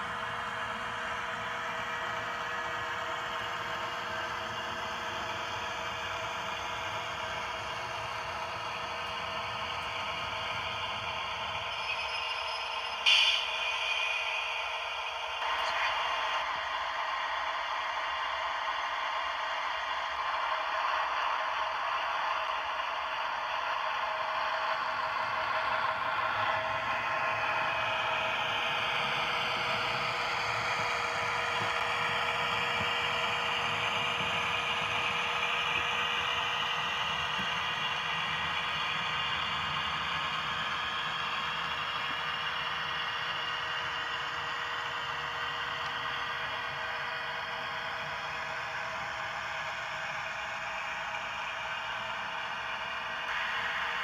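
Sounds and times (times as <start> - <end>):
model locomotive whirring: 0.0 - 54.0
wagons rattling along track: 20.3 - 54.0.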